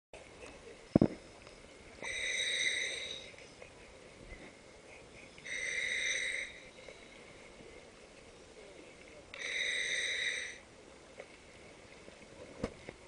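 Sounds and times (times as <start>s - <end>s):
regulator breathing hiss: 2.0s - 3.4s, 5.4s - 7.5s, 9.4s - 10.6s.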